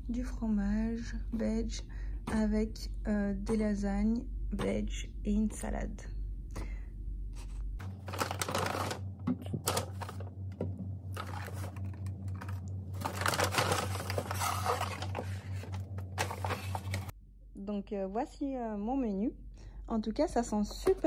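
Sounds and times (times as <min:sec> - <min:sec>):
steady low hum: 0:00.0 - 0:21.0
paper bag rustling: 0:07.8 - 0:10.3, 0:11.1 - 0:17.1.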